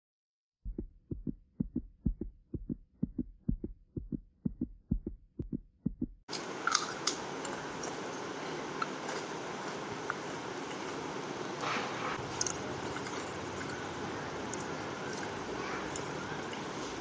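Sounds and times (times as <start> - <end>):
heartbeat thumps: 0.6 - 6.3
hand mixing food on steel plate: 6.3 - 17.0.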